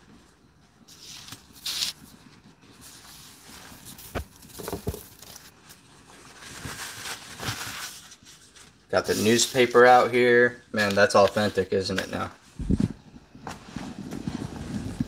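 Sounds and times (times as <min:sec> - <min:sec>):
handling rustle: 0:00.0 - 0:10.0.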